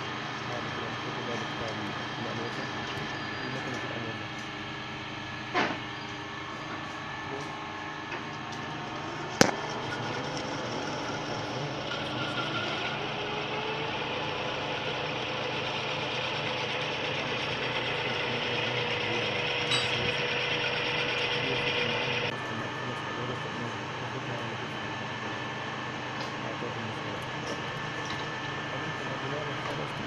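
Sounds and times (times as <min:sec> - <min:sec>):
lathe motor hum: 0:00.0 - 0:30.0
sharp clack: 0:09.4 - 0:10.1.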